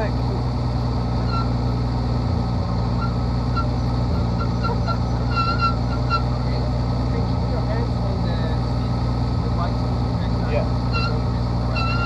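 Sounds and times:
propeller plane engine running: 0:00.0 - 0:12.0.

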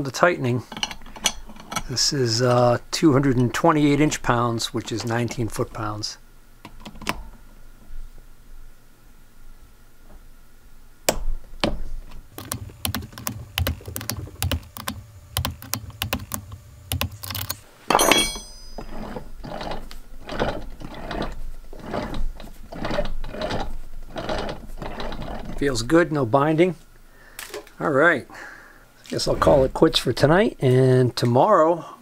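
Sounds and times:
torque wrench ratchet clicking: 0:12.4 - 0:17.6
metal clank with ring: 0:17.9 - 0:19.0.

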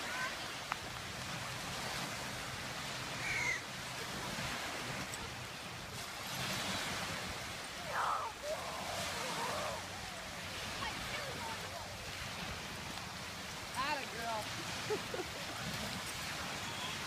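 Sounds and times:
steady outdoor hiss: 0:00.0 - 0:17.0
crow cawing: 0:03.2 - 0:03.6.

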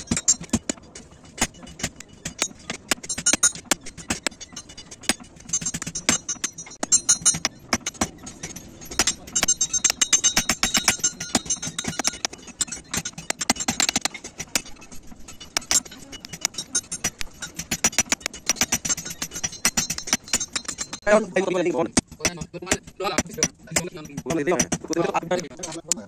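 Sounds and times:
hammer ringing on anvil: 0:05.5 - 0:14.0.

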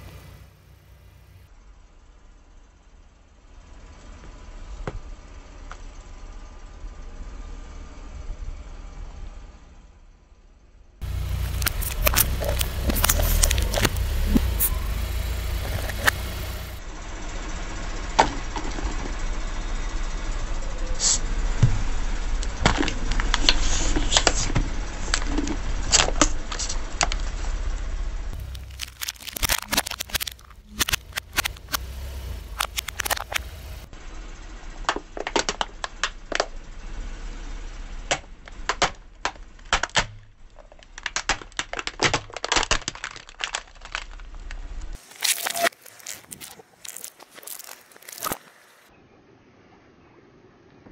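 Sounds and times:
car engine idling: 0:00.0 - 0:42.5
plastic cracking under tyre: 0:11.0 - 0:16.6, 0:22.6 - 0:27.4, 0:28.3 - 0:33.9, 0:34.8 - 0:36.6, 0:38.1 - 0:48.9.

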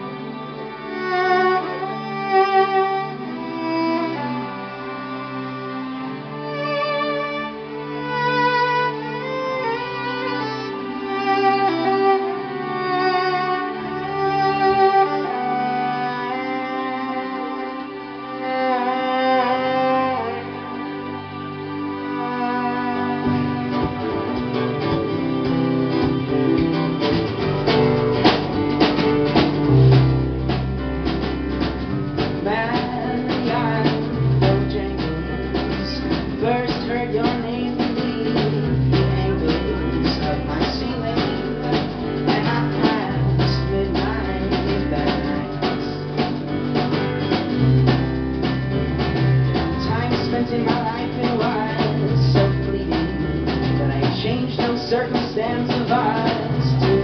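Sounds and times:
acoustic guitar: 0:00.0 - 0:57.0
keyboard: 0:00.0 - 0:57.0
violin: 0:00.0 - 0:57.0
drums and bass: 0:08.0 - 0:16.5, 0:22.9 - 0:57.0
man singing: 0:32.4 - 0:46.2, 0:49.8 - 0:57.0.

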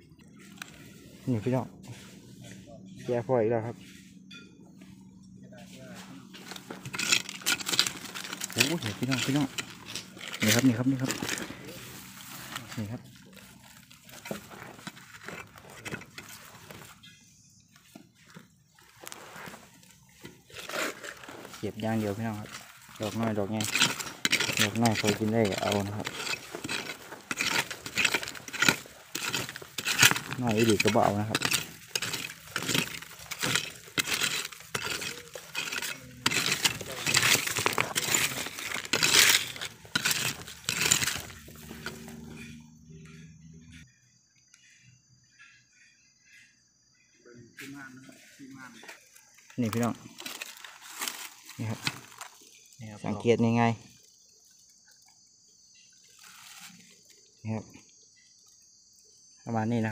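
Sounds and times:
metal tool scraping gravelly soil: 0:00.3 - 0:04.4, 0:05.6 - 0:43.8, 0:48.1 - 0:53.6
hands rustling through dry leaves: 0:06.0 - 0:15.3, 0:18.8 - 0:41.9, 0:49.7 - 0:52.6
small stones clinking: 0:06.3 - 0:17.2, 0:18.8 - 0:42.6, 0:49.6 - 0:52.8.

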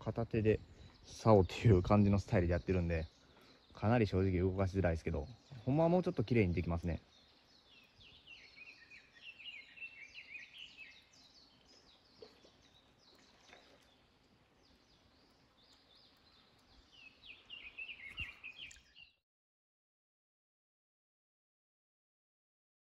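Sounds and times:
small birds chirping: 0:00.0 - 0:19.2.

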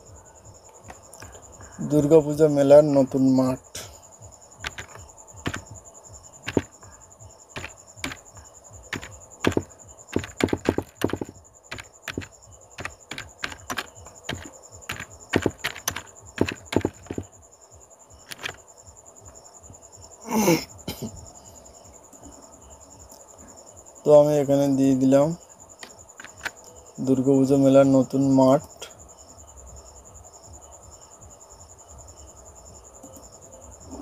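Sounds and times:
typing on keyboard: 0:04.6 - 0:05.7, 0:06.5 - 0:06.7, 0:07.6 - 0:08.3, 0:08.9 - 0:17.3, 0:18.3 - 0:18.6, 0:26.2 - 0:26.6.

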